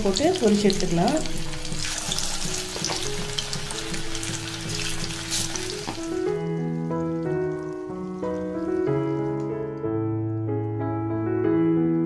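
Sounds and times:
chicken deep-frying in oil: 0.0 - 9.5
soft background music: 0.0 - 12.0.

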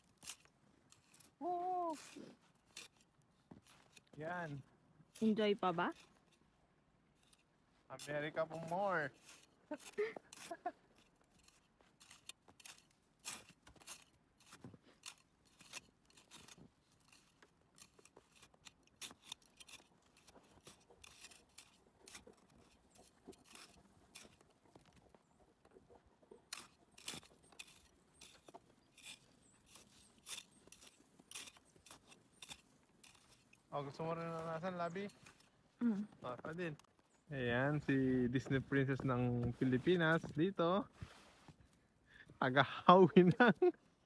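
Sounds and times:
ice scraper scraping snow: 8.0 - 25.0, 26.5 - 35.4.

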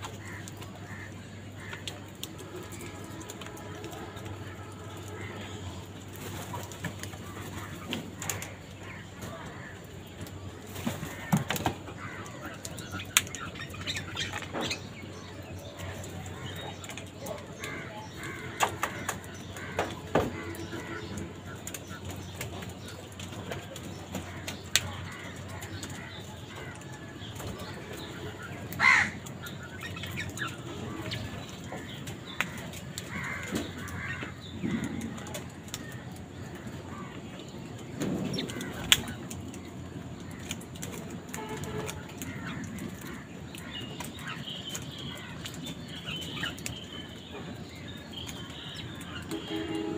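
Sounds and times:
wings flapping: 0.0 - 14.9, 37.9 - 46.7
crow calls: 0.0 - 23.0, 23.6 - 49.9
crow cawing: 11.0 - 12.6, 17.6 - 21.2, 28.8 - 29.3, 31.7 - 35.2.

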